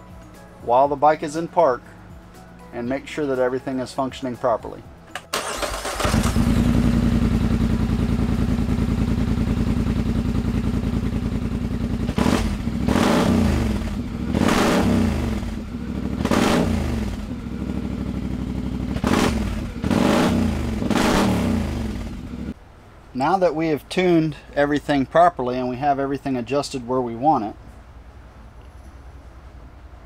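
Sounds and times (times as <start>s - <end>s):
atv engine idling and revving: 6.0s - 22.6s.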